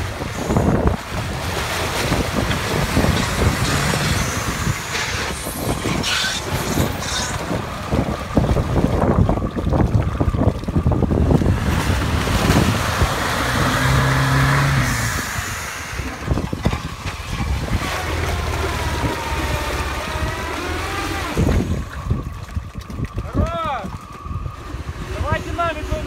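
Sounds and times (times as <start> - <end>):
off-road vehicle engine revving: 0.0 - 9.2, 11.0 - 22.2
mud and water splashing: 0.0 - 26.0.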